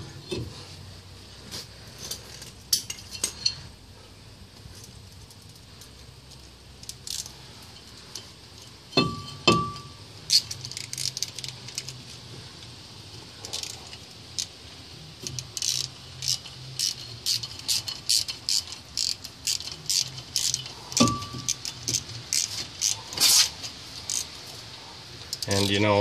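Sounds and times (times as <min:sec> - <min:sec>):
ringing metal ping: 0:08.9 - 0:10.0, 0:21.0 - 0:21.5
hand tools clinking on metal: 0:08.9 - 0:11.1, 0:15.6 - 0:23.5.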